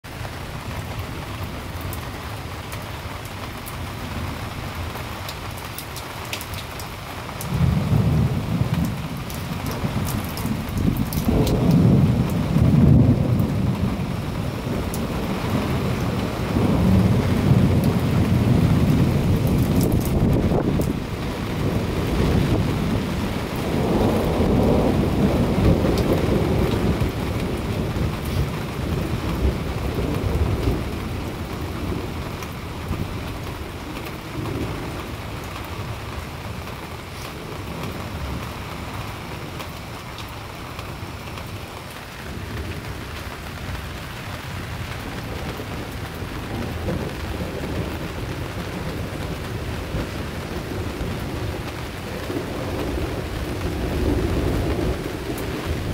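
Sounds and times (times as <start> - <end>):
steady rain: 0.0 - 55.9
roll of thunder: 7.5 - 33.1, 45.2 - 55.9.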